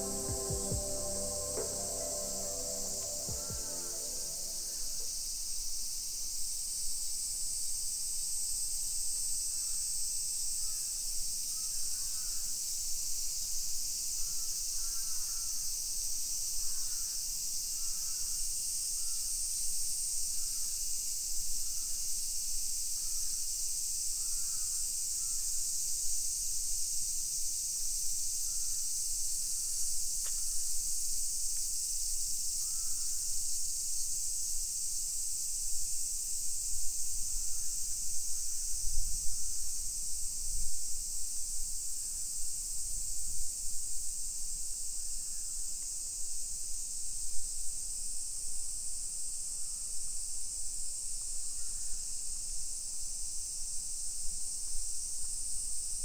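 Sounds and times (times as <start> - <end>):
cicada chorus drone: 0.0 - 56.0.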